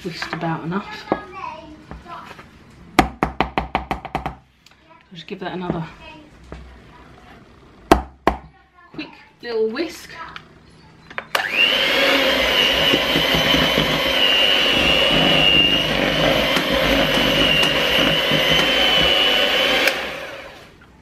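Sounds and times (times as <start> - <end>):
electric hand mixer whining: 11.4 - 20.8.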